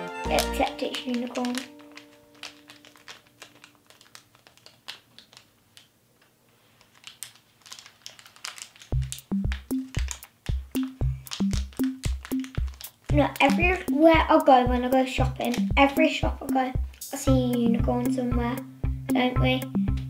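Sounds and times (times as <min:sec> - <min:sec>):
plastic sachet crinkling and tearing: 0:00.0 - 0:16.2
music with bouncy bass line: 0:09.0 - 0:20.0.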